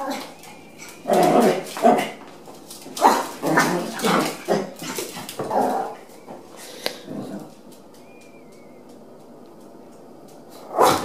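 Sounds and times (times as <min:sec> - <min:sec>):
small dogs barking: 0:03.0 - 0:06.1, 0:10.6 - 0:11.0.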